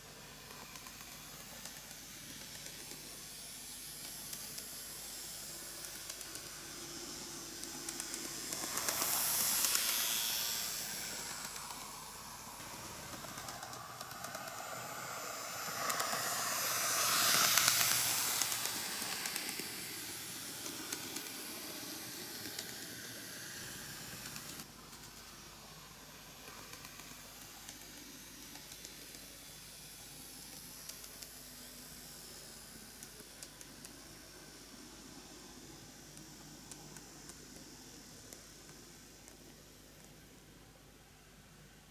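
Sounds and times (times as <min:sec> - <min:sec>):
model train motor whirring: 0:00.0 - 0:40.4.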